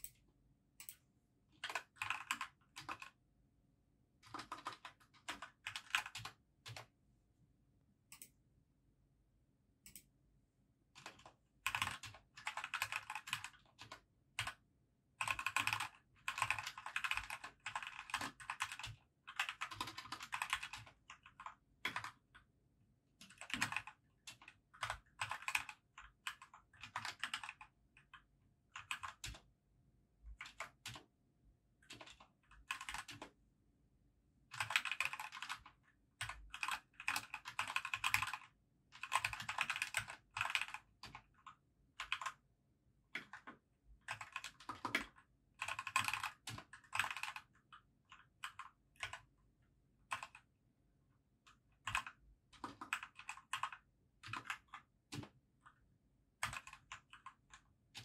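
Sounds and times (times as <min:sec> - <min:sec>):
fast typing on keyboard: 0:01.6 - 0:03.2, 0:04.2 - 0:06.9, 0:11.0 - 0:22.5, 0:23.2 - 0:29.5, 0:30.2 - 0:31.1, 0:31.8 - 0:33.4, 0:34.5 - 0:42.4, 0:43.1 - 0:49.4, 0:50.0 - 0:50.5, 0:51.5 - 0:58.0.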